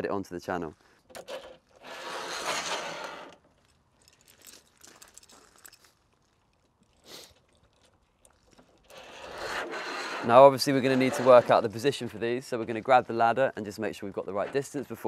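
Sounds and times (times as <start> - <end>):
metal bracket sliding in channel: 1.2 - 3.4, 8.9 - 11.8.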